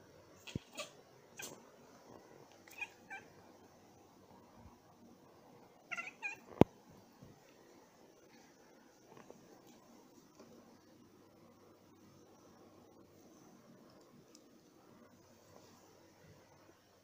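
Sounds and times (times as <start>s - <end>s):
cat chirping: 0.4s - 1.6s, 2.6s - 3.3s, 5.9s - 6.6s.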